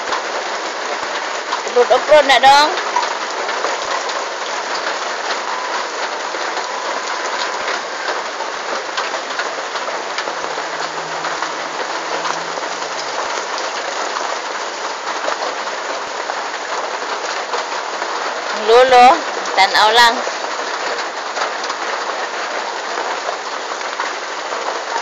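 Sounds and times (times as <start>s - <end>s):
rain hissing: 0.0s - 25.0s
raindrops splashing on concrete: 0.0s - 25.0s.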